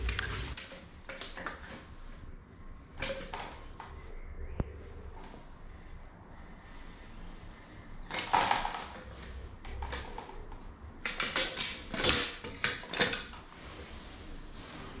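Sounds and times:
metal caulking gun clattering: 11.0 - 13.4.

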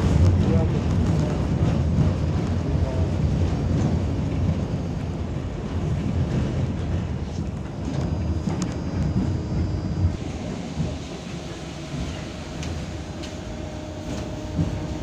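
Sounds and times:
tram wheels rumbling: 0.0 - 15.0.

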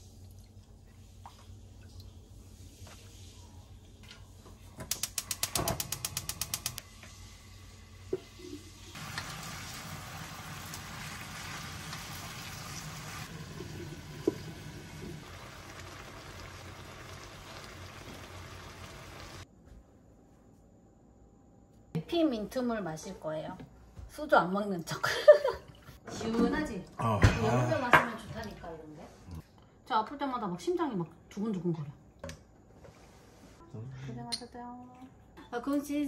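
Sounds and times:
ratchet-like mechanical clicks: 4.9 - 6.8.

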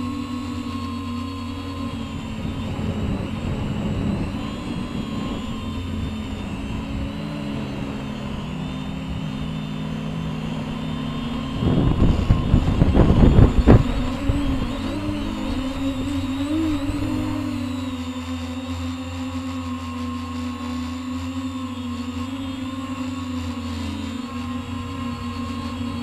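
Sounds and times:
wind buffeting microphone: 0.0 - 18.0
quadcopter motors humming: 0.0 - 26.0.

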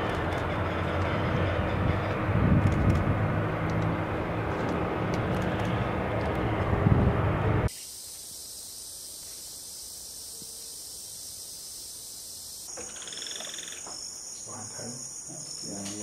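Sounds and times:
crickets and insects chirping: 7.7 - 16.0.

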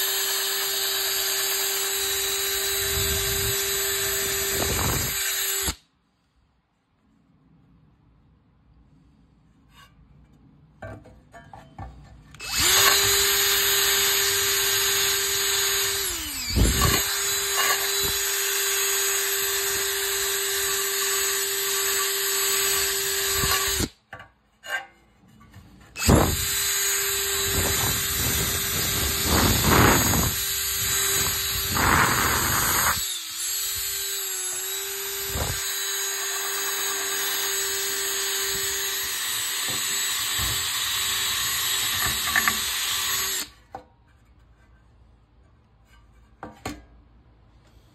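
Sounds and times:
drill motor whine: 0.0 - 5.8, 12.4 - 23.9, 26.0 - 43.5.

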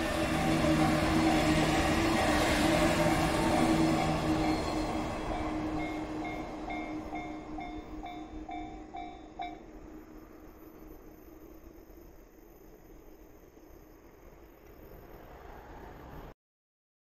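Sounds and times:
level crossing warning bell: 0.0 - 11.6
electric train passing: 0.0 - 16.4.

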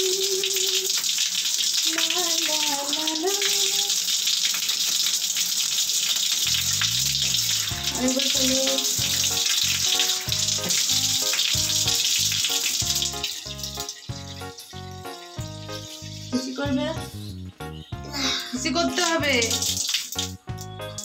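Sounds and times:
water splashing on face: 0.0 - 17.3, 18.5 - 21.0
water running from a tap: 0.0 - 17.5, 18.1 - 21.0
background music with beat: 8.8 - 21.0.

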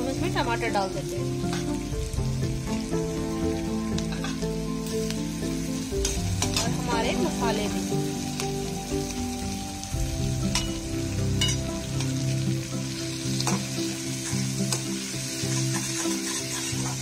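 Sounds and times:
vegetables sizzling in oil: 0.0 - 17.0
spatula scraping a pan: 13.4 - 17.0.

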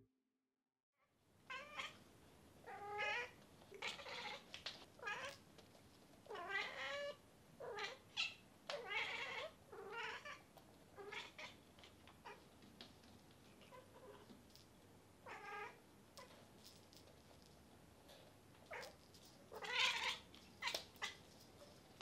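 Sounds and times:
cat meowing: 1.5 - 2.0, 2.7 - 4.4, 6.3 - 10.4, 11.0 - 11.6, 19.6 - 21.2.

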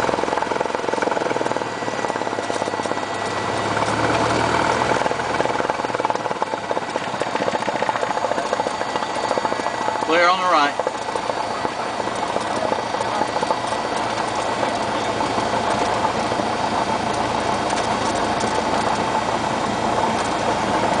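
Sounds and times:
propeller airplane engine idling: 0.0 - 21.0.

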